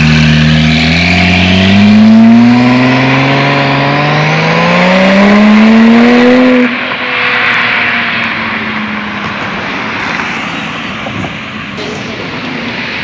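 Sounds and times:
sports car accelerating: 0:00.0 - 0:13.0
broad rushing noise: 0:05.5 - 0:13.0.

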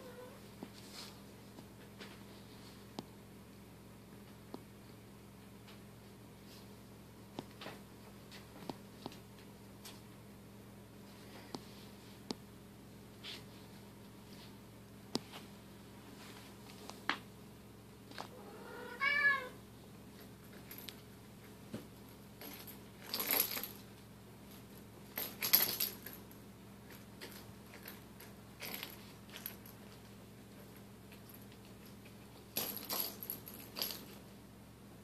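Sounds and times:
cat meowing: 0:00.0 - 0:00.4, 0:18.4 - 0:19.6.

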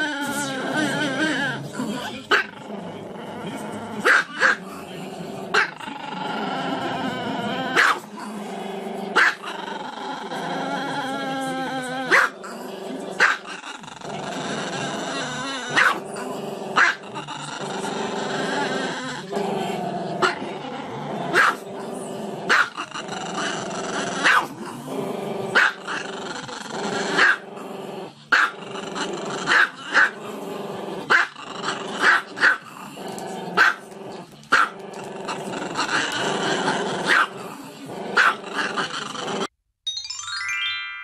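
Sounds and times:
dog barking: 0:04.0 - 0:04.6, 0:07.8 - 0:08.0, 0:09.2 - 0:09.5, 0:12.1 - 0:12.4, 0:13.2 - 0:13.5, 0:15.7 - 0:16.0, 0:16.8 - 0:17.0, 0:21.3 - 0:21.6, 0:22.5 - 0:22.8, 0:24.2 - 0:24.5, 0:25.6 - 0:25.8, 0:27.2 - 0:27.4, 0:28.3 - 0:28.6, 0:29.5 - 0:30.2, 0:31.1 - 0:31.3, 0:32.0 - 0:32.6, 0:33.6 - 0:33.8, 0:34.5 - 0:34.7, 0:37.1 - 0:37.3, 0:38.2 - 0:38.4.

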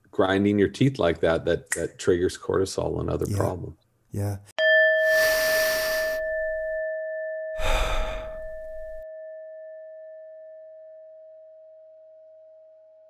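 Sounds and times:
struck chime ringing: 0:04.6 - 0:06.9
person breathing: 0:05.0 - 0:06.8, 0:07.6 - 0:09.0.

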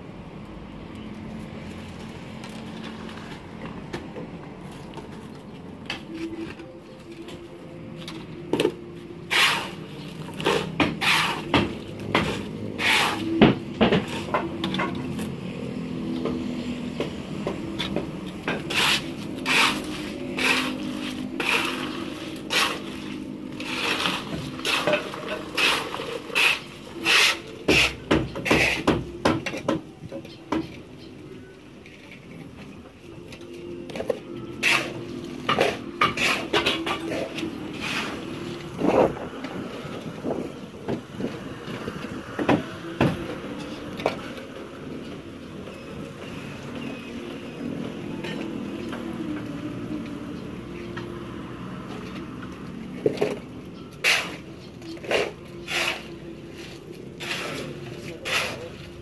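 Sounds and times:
shovel scraping concrete floor: 0:08.6 - 0:15.0, 0:18.5 - 0:29.0, 0:34.6 - 0:39.1, 0:54.0 - 0:59.0.

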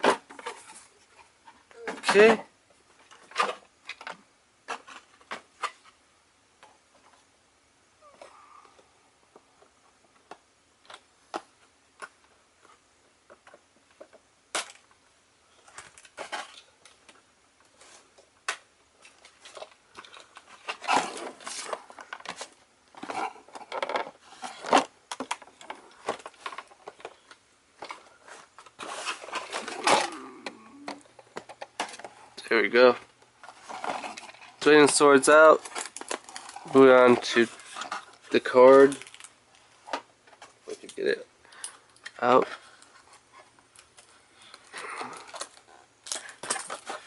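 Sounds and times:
packaging rustling and crinkling: 0:19.0 - 0:41.2, 0:41.8 - 0:47.0.

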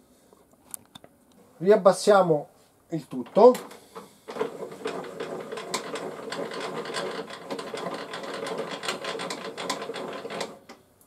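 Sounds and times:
saw crank clicking: 0:03.2 - 0:10.8.

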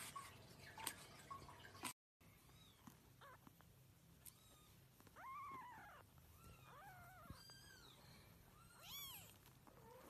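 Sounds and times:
kitten mewing: 0:04.2 - 0:07.9.

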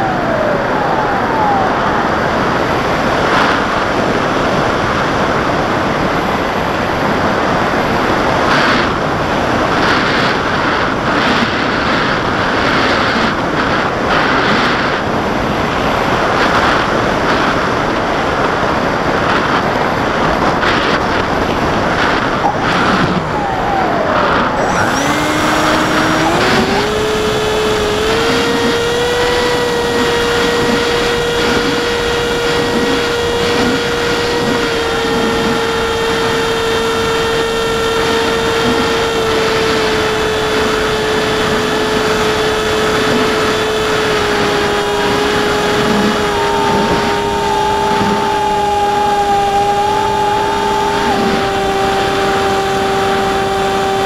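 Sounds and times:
electric motor whine: 0:00.0 - 0:54.0
wind rushing: 0:11.7 - 0:32.1
higher tone: 0:22.4 - 0:31.3, 0:42.6 - 0:53.2.

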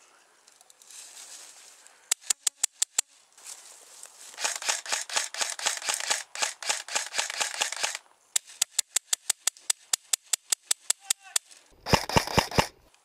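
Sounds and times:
airsoft rifles firing: 0:04.4 - 0:09.5, 0:11.8 - 0:12.8.

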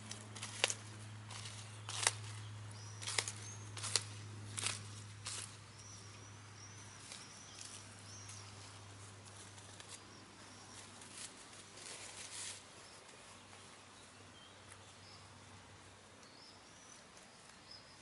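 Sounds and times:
hens scratching in grass: 0:00.0 - 0:18.0
low steady hum: 0:00.0 - 0:18.0.

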